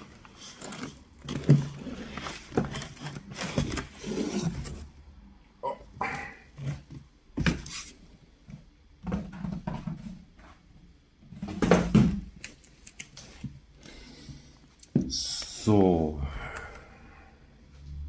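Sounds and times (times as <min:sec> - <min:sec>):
cardboard carton rustling and scraping: 0:00.0 - 0:04.9.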